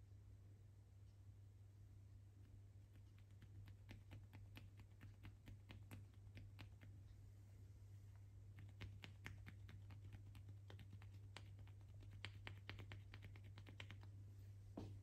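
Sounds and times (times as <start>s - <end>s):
steady low hum: 0.0s - 15.0s
fingers tapping at ear: 2.8s - 7.0s, 8.5s - 14.1s.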